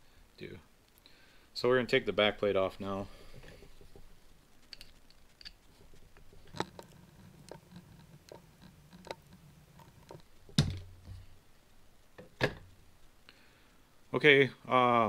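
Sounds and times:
small metal clicks: 6.2s - 10.3s.

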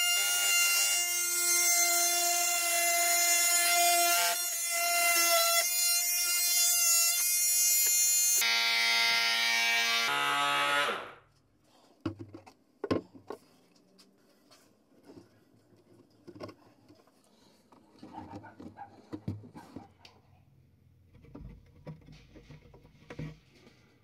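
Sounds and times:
oscillating multi-tool buzzing: 0.0s - 11.2s.

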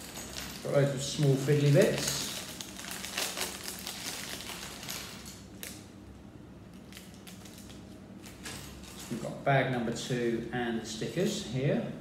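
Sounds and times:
plastic bag crinkling: 0.0s - 5.9s, 6.7s - 9.3s.

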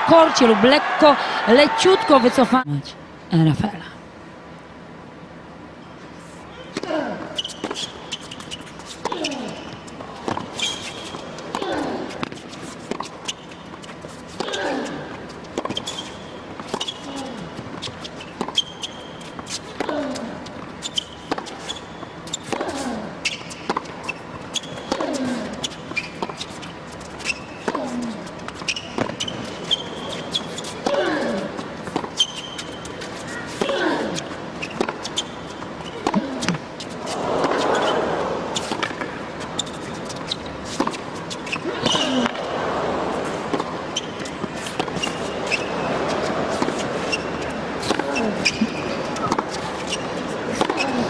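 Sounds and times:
quiet crowd hum: 0.0s - 51.0s
shoes squeaking on court: 5.8s - 51.0s
tennis ball bouncing: 6.7s - 51.0s
racket striking ball: 34.8s - 39.3s.

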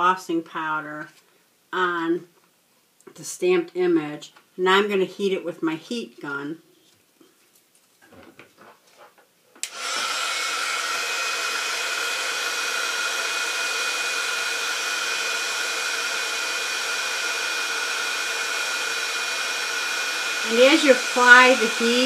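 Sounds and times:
heat gun air rush and fan whine: 9.6s - 22.0s.

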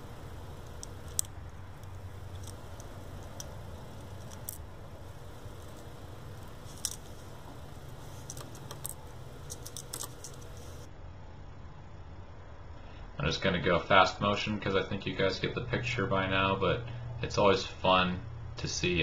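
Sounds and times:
low hum: 0.0s - 13.3s
tweezers clicking: 0.1s - 10.9s.

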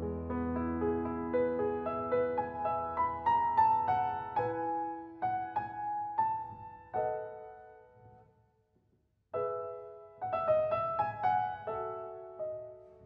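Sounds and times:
slow solo piano: 0.0s - 13.0s.

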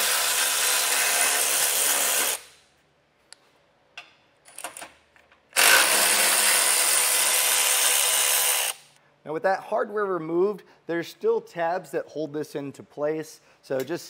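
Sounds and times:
electric ratchet whining: 5.6s - 9.0s.

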